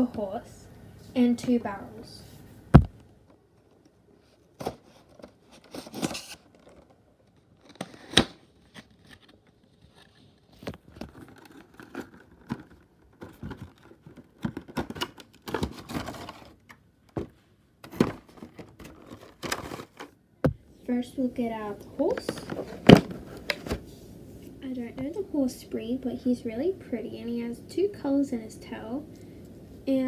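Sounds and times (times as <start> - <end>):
cardboard and plastic packaging rustling: 2.8 - 20.2, 22.0 - 24.0.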